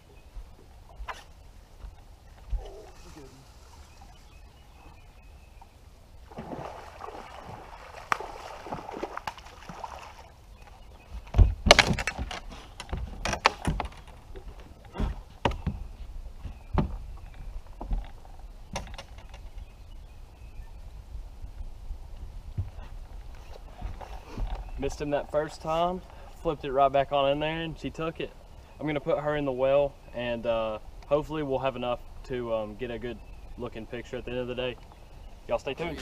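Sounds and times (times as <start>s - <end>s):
water splashing: 6.2s - 10.5s.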